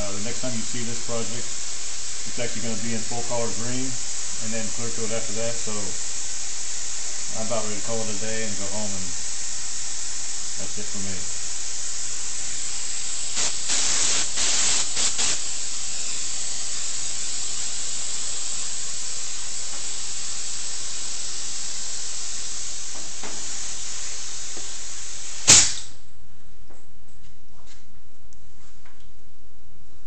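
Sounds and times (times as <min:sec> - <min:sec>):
compressed air hissing: 0:00.0 - 0:26.1
loud pop: 0:25.4 - 0:26.0.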